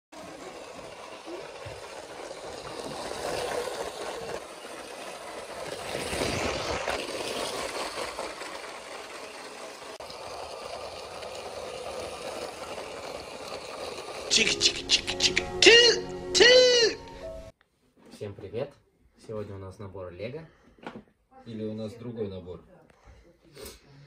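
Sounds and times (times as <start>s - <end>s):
wheels rattling over plastic track: 0.1s - 17.0s
toy train motor: 0.1s - 17.2s.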